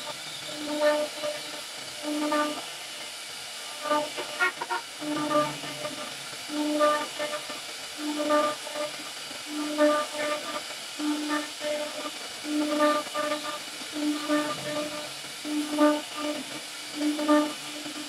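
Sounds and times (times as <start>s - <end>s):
router carving wood: 0.0s - 18.0s
short pitched note pattern: 4.5s - 6.4s.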